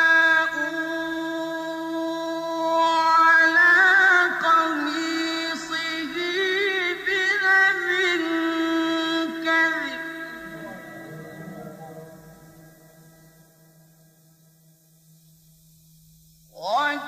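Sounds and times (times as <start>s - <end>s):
man reciting melodically: 0.0s - 13.5s, 16.5s - 17.0s.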